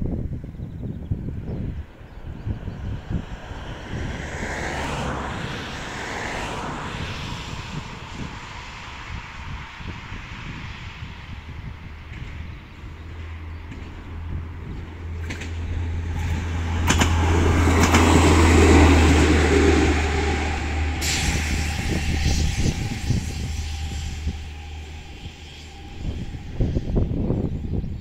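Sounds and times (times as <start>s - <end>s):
diesel railcar engine drone: 0.0s - 28.0s
train rolling noise: 1.7s - 28.0s
wheels clicking over rails: 14.8s - 19.8s.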